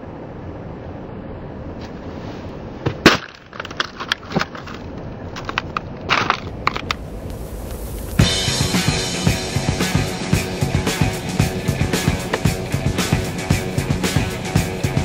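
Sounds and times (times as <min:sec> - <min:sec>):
music: 0:08.2 - 0:15.0.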